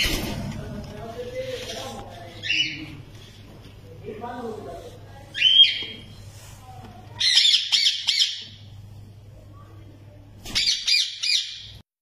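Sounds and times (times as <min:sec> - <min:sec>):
parrot chicks squawking: 0:02.4 - 0:03.0, 0:05.3 - 0:06.0, 0:07.2 - 0:08.7, 0:10.5 - 0:11.8.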